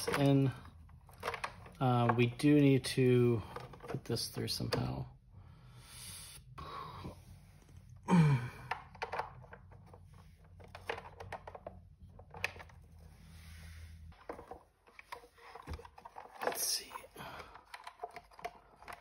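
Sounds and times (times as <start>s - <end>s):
plastic and metal clicks and scrapes: 0.0s - 2.6s, 3.4s - 5.0s, 8.7s - 13.1s, 14.1s - 19.0s.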